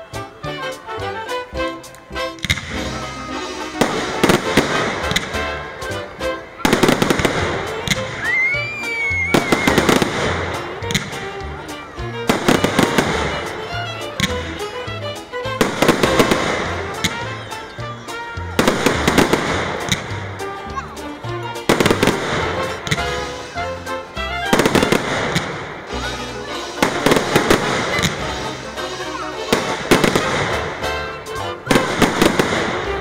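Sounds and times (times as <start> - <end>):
music playing: 0.0 - 33.0
fireworks crackling and popping: 1.8 - 33.0.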